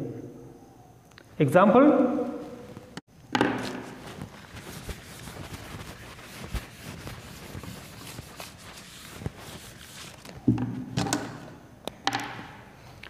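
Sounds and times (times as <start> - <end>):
eraser scrubbing whiteboard: 3.6 - 10.5.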